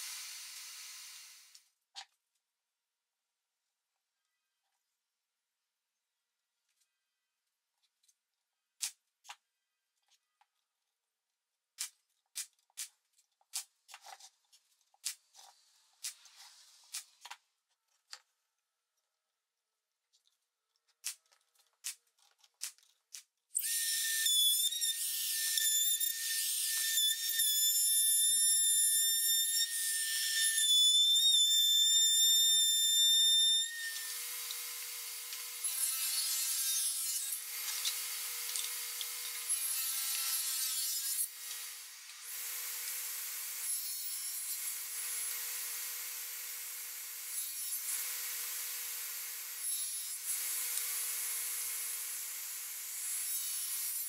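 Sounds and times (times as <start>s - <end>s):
power saw cutting wood: 23.6s - 54.0s
table saw crosscutting wood: 23.6s - 54.0s.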